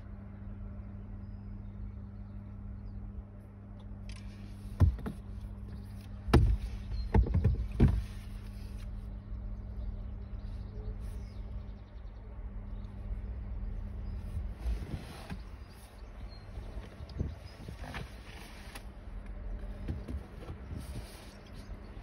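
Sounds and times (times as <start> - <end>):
sharp knocks: 6.3 - 8.1.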